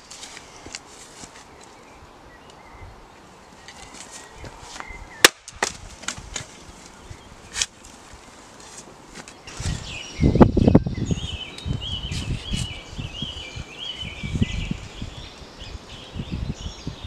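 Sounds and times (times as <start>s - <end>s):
axe splitting a log: 5.2s - 6.5s.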